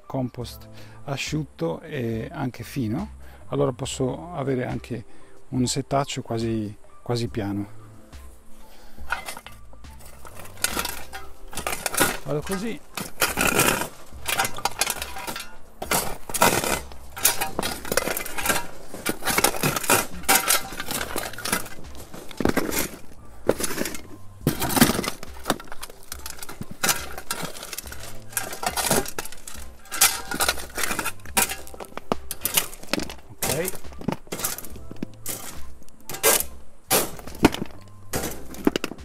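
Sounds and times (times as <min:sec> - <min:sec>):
shovel scraping on metal sheet: 0:09.0 - 0:39.0.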